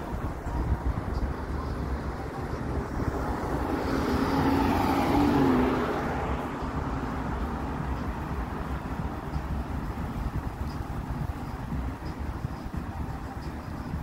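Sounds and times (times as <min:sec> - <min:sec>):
city traffic noise: 0:00.0 - 0:14.0
car driving past: 0:03.0 - 0:07.3.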